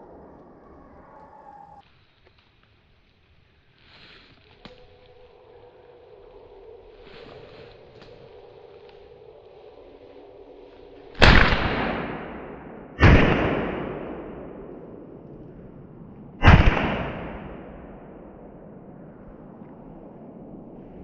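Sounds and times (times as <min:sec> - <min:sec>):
shotgun shots with echo: 0:11.2 - 0:14.6, 0:16.4 - 0:17.9.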